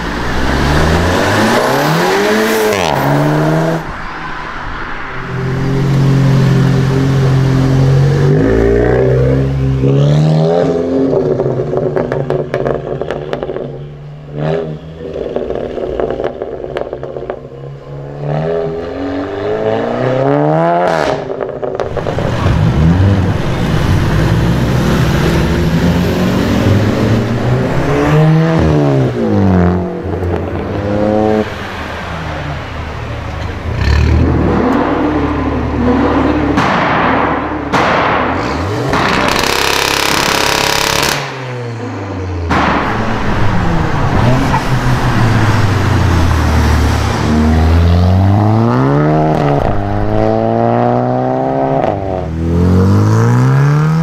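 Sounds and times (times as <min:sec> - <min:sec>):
cars accelerating and revving: 0:00.0 - 0:54.0
exhaust pops and crackles: 0:11.3 - 0:13.8, 0:15.1 - 0:17.5, 0:20.9 - 0:22.6, 0:36.6 - 0:41.4.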